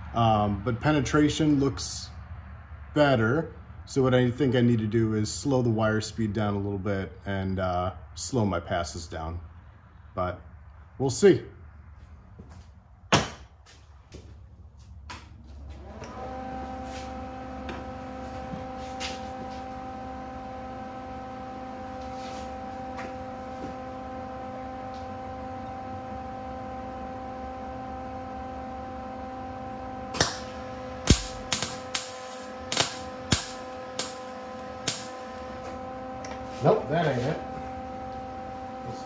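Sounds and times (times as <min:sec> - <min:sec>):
welder humming: 0:15.6 - 0:39.0
welding arc crackling bursts: 0:30.2 - 0:35.6.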